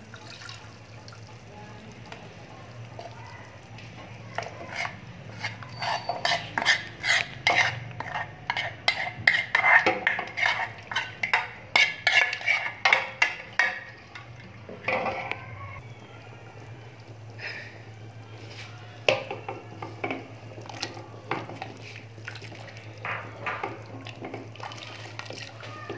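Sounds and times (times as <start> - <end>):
spoon scraping a metal pot: 4.4 - 13.9.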